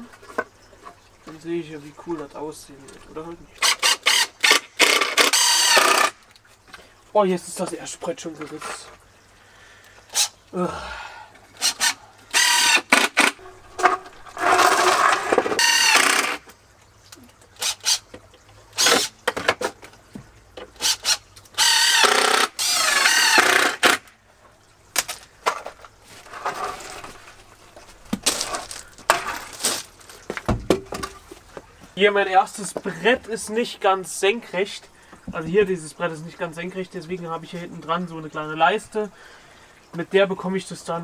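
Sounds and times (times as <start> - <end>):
drill driving screws into wood: 3.6 - 6.2, 10.1 - 10.3, 11.6 - 13.4, 14.4 - 16.4, 17.6 - 18.1, 18.8 - 19.5, 20.8 - 24.1
clicks and knocks of wood: 18.1 - 20.8, 24.9 - 32.0
footsteps on gravel: 26.0 - 32.0.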